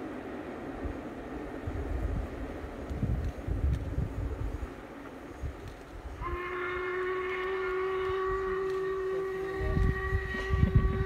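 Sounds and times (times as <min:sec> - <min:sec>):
steam locomotive whistle: 0:06.1 - 0:11.0.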